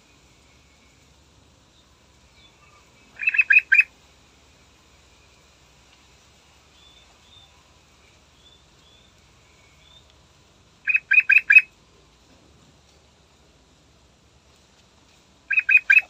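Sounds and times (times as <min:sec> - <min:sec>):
faint high chirps: 0:00.0 - 0:03.9, 0:06.4 - 0:10.2, 0:10.8 - 0:11.7, 0:15.5 - 0:16.0.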